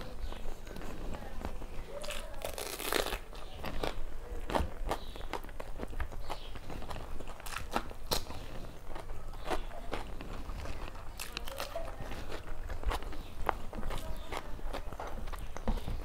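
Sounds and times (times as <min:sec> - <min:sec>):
chewing and mouth smacking: 0:00.0 - 0:16.0
food crunching: 0:00.0 - 0:16.0.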